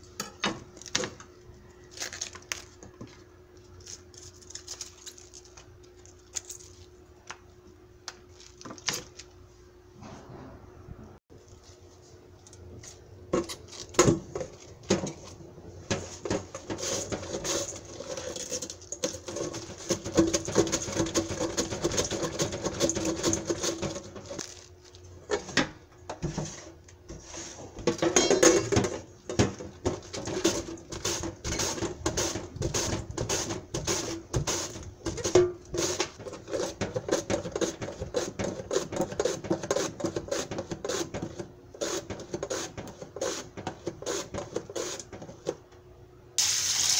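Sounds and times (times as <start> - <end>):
cabbage shredded on mandoline: 16.6 - 24.8, 30.1 - 45.0.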